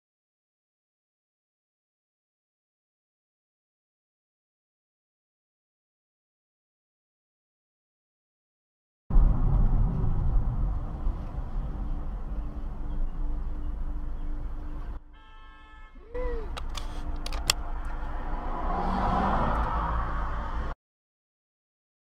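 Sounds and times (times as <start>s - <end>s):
car road and engine rumble: 9.1s - 20.8s
sharp clicks and knocks: 16.5s - 18.0s.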